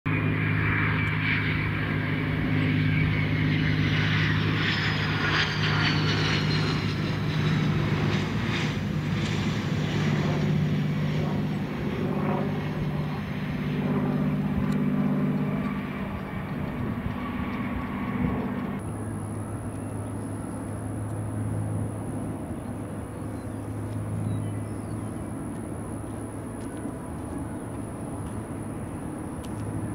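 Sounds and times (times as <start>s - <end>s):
jet engine whine: 0.1s - 29.9s
low engine hum: 0.1s - 29.9s.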